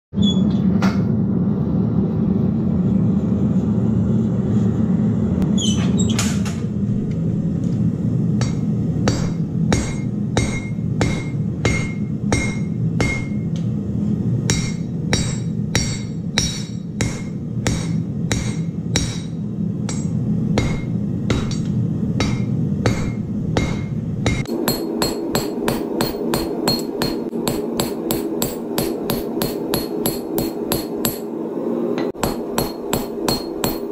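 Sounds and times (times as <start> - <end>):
gas forge burner roar: 1.1 - 33.9
hammer blows on anvil: 8.4 - 13.5, 14.5 - 31.4, 32.0 - 33.9.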